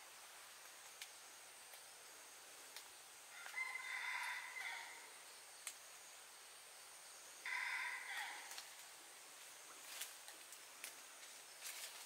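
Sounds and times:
faint sharp clicks: 0:00.6 - 0:01.9, 0:02.7 - 0:03.6, 0:05.6 - 0:05.8, 0:08.5 - 0:08.9, 0:10.0 - 0:11.4
rooster crowing: 0:03.3 - 0:05.2, 0:07.4 - 0:08.5.

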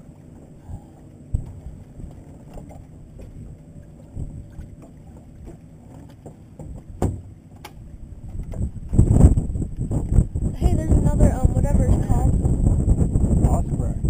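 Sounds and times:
wind on microphone: 0:00.0 - 0:05.6, 0:06.6 - 0:14.0
water lapping at hull: 0:00.0 - 0:14.0
light knocks on boat: 0:04.1 - 0:08.7.

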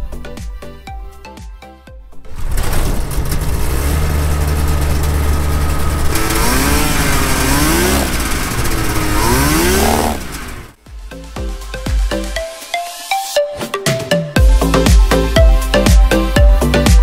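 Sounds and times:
two-stroke engine revving: 0:03.0 - 0:10.8.

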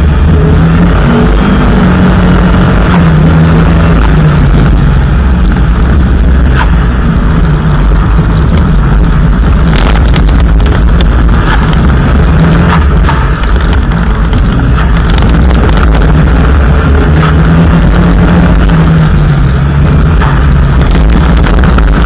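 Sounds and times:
car rumbling on gravel: 0:00.0 - 0:22.0
rally car engine at high revs: 0:00.0 - 0:22.0.

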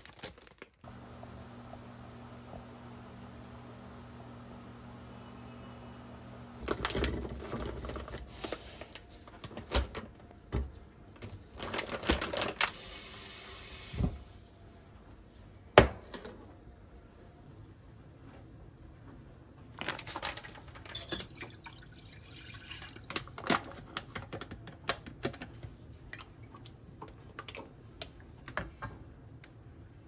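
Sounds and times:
plastic bag rustling: 0:00.0 - 0:00.8, 0:06.6 - 0:10.0, 0:11.2 - 0:12.9
washing machine hum: 0:00.8 - 0:15.2.

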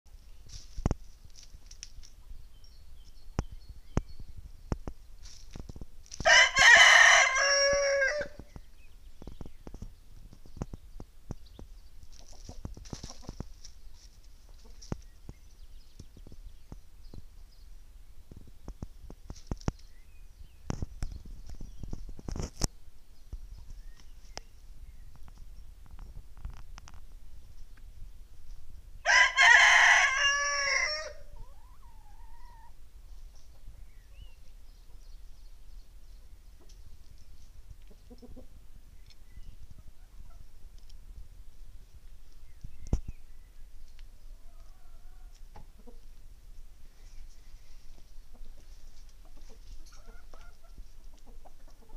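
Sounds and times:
chickens pecking stony ground: 0:00.1 - 0:51.9
rooster crowing: 0:06.3 - 0:08.4, 0:29.0 - 0:31.3
chickens clucking softly: 0:11.4 - 0:17.4, 0:30.1 - 0:35.4, 0:36.2 - 0:41.0, 0:43.8 - 0:46.2, 0:47.0 - 0:51.9.

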